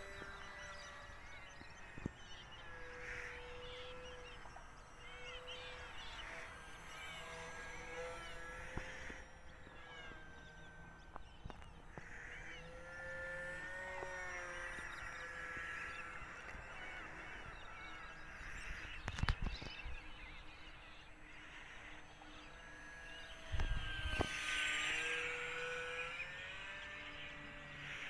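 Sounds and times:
model plane electric motor whine: 0.0s - 28.0s.

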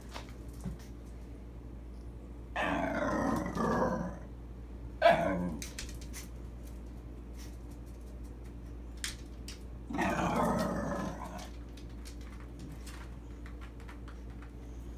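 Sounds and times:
dog growling: 2.6s - 4.3s, 5.0s - 5.7s, 9.9s - 11.6s.

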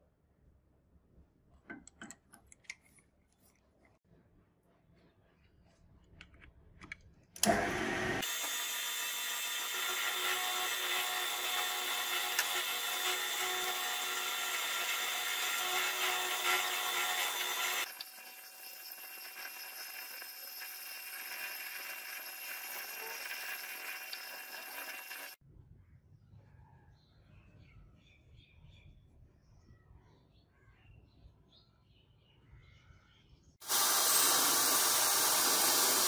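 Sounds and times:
drill press cutting into brass: 7.4s - 25.4s, 33.6s - 36.0s.

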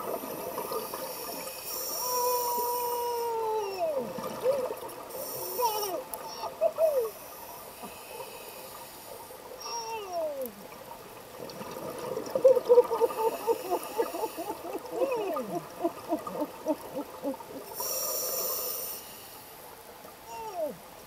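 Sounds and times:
inhaled air hiss: 0.0s - 3.9s, 5.1s - 10.7s, 17.6s - 20.7s
regulator bubbles burbling: 11.3s - 17.8s.

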